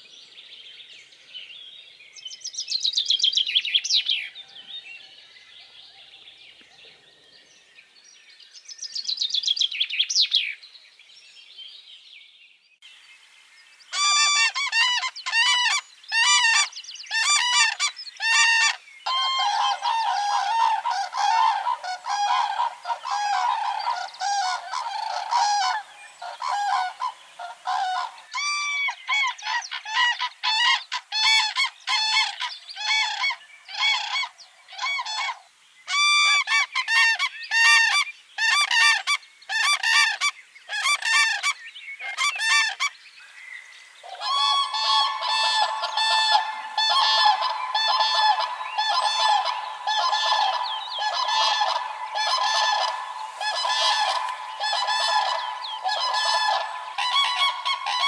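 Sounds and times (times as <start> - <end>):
birds making harsh calls: 13.9 - 43.0, 44.0 - 58.0.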